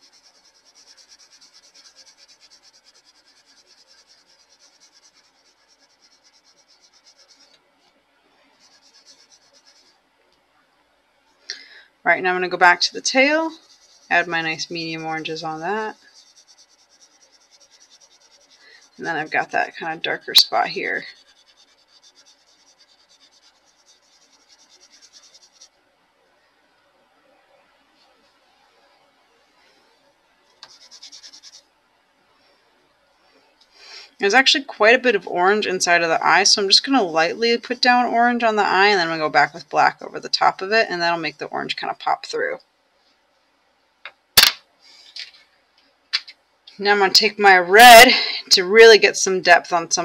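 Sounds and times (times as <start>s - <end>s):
pencil scratching on paper: 0.0s - 7.6s, 8.5s - 10.0s, 12.5s - 25.7s, 30.6s - 31.6s.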